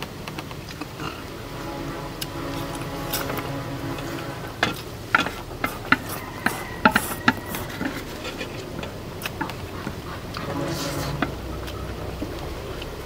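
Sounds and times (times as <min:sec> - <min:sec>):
utensils scraping on a plate: 0:04.0 - 0:11.9.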